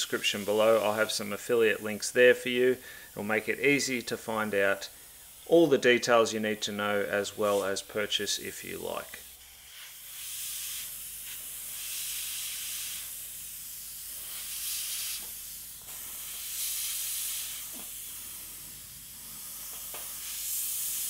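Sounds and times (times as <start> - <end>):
airbrush hissing: 0.0 - 21.0
steady low hum: 13.7 - 21.0.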